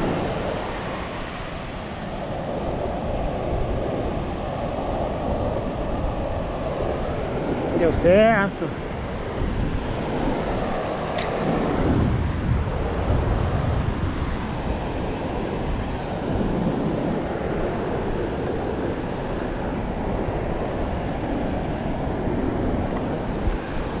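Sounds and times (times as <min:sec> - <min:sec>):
ocean surf breaking: 0:00.0 - 0:24.0
wind buffeting microphone: 0:00.0 - 0:24.0.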